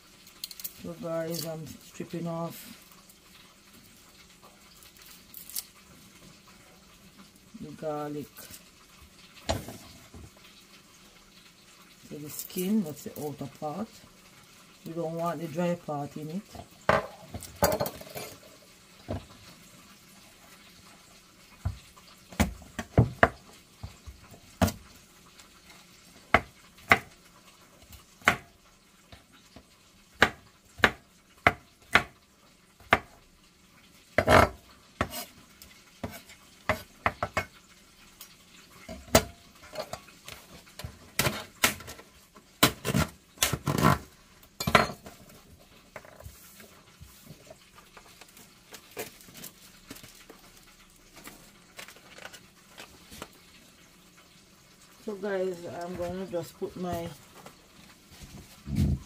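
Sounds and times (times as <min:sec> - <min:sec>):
knife chopping on wooden board: 0:30.2 - 0:32.1.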